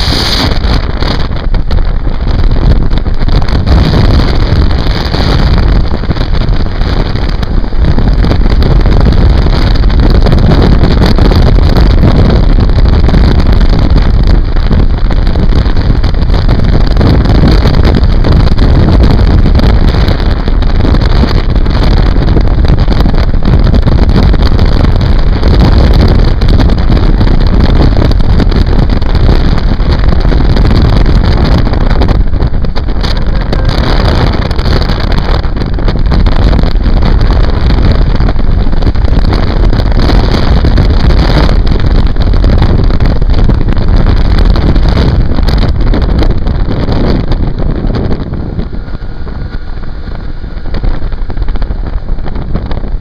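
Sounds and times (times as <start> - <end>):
wind buffeting microphone: 0.0 - 53.0.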